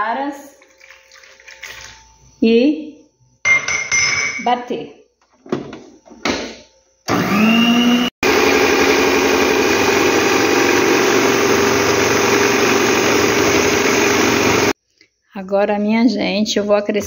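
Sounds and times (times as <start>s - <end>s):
beater whipping eggs: 7.1s - 14.8s
stand mixer motor whine: 7.1s - 14.8s.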